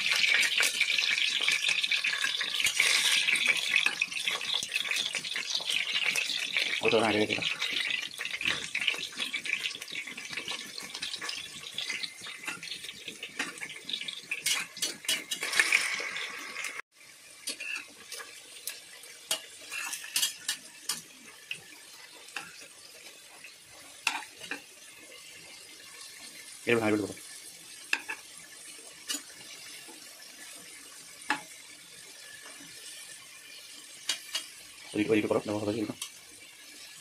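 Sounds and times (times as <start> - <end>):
metal spoon clinking and scraping pot: 0.0 - 6.7, 9.6 - 15.9, 17.4 - 21.1, 22.3 - 22.7, 24.0 - 24.7, 27.9 - 28.2, 29.0 - 29.6, 34.0 - 34.6
potatoes sizzling in hot oil: 0.0 - 37.0.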